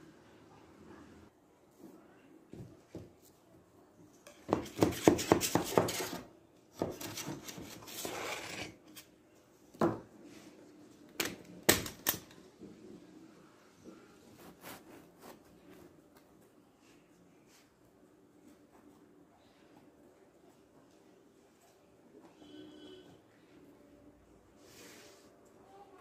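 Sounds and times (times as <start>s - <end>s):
knife scraping metal cake pan: 4.5s - 9.1s.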